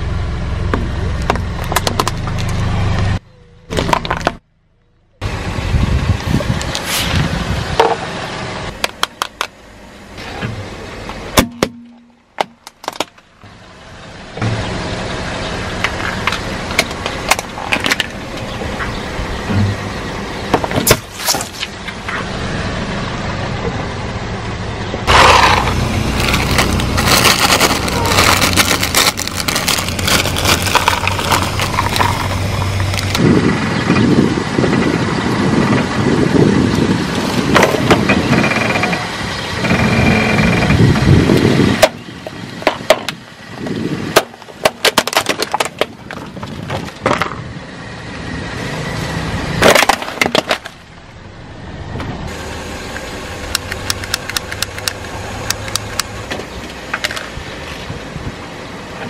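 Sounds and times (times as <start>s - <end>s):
car engine running: 0.0s - 59.0s
snacks crunching: 25.1s - 32.3s
plastic cracking and snapping: 26.2s - 32.2s.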